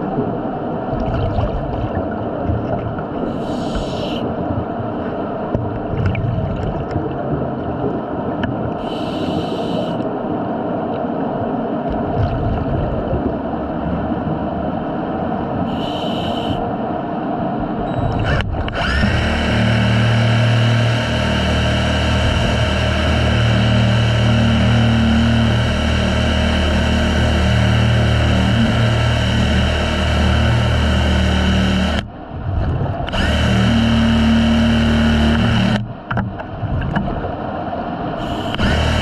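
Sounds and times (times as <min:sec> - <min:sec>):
scuba regulator bubbles: 0:00.0 - 0:10.0
steady mechanical hum: 0:00.0 - 0:39.0.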